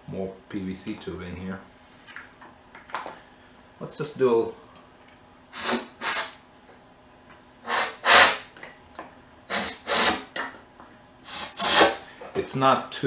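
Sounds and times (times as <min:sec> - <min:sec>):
compressed air blasts hissing: 0:05.5 - 0:06.4, 0:07.6 - 0:08.5, 0:09.5 - 0:10.3, 0:11.2 - 0:12.1.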